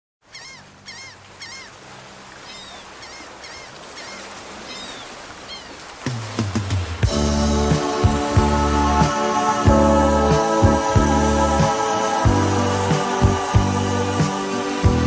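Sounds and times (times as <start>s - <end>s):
bird chirping: 0.3s - 1.8s, 2.4s - 5.8s
loud music: 7.0s - 15.0s.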